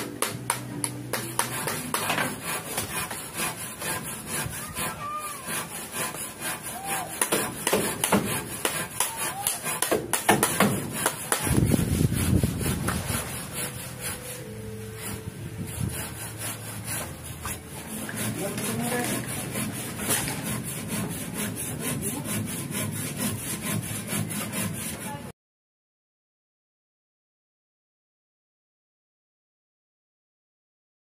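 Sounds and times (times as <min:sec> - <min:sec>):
plastic rubbing on plastic: 0:15.8 - 0:25.2.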